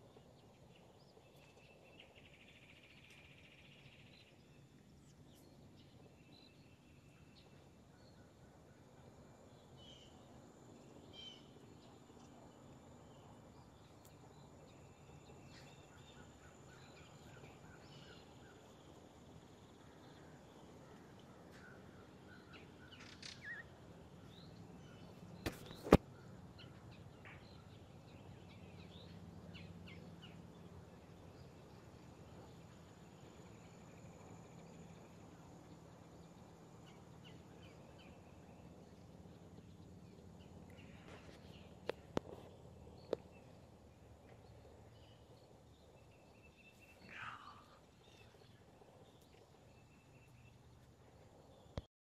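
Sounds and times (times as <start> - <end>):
steady low hum: 0.0 - 51.9
small bird chirps: 21.5 - 26.0.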